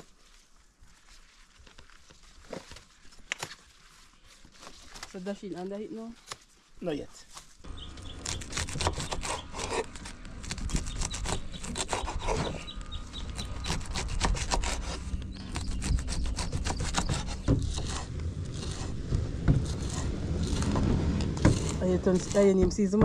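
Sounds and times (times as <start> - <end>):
rapid rasping scrapes: 8.2 - 23.0.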